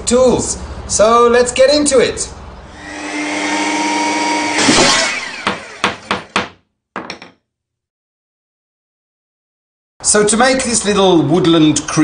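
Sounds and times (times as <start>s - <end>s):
mechanical whir: 2.7s - 6.1s
sharp knocks: 4.6s - 7.4s.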